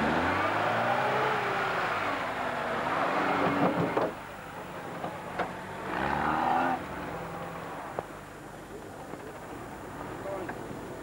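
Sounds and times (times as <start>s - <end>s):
car engine revving: 0.0s - 4.2s.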